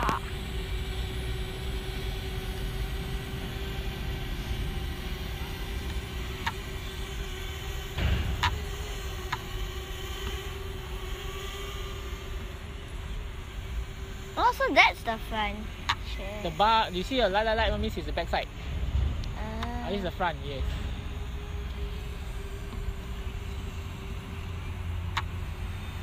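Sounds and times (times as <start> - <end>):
drone propellers humming: 0.0 - 26.0
wind rumbling on microphone: 18.4 - 21.9.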